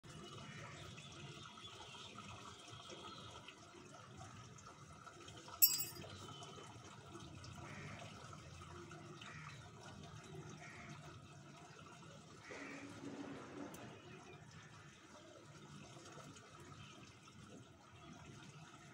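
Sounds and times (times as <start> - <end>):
sharp ringing clink: 5.6 - 6.1.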